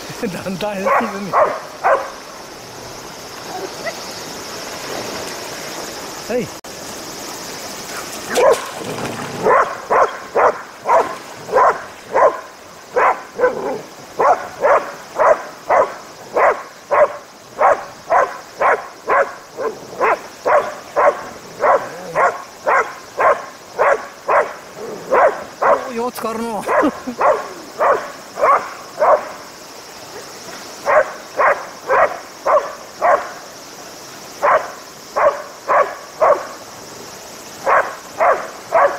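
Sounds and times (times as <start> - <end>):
dog barking: 0.8 - 2.2, 8.3 - 8.7, 9.4 - 25.9, 26.6 - 29.4, 30.8 - 33.4, 34.4 - 36.6, 37.6 - 38.9.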